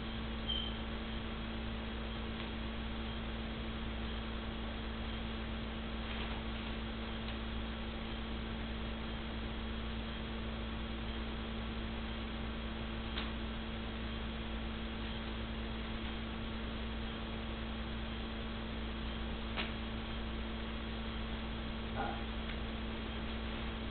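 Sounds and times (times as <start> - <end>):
electrical hum: 0.0 - 23.9.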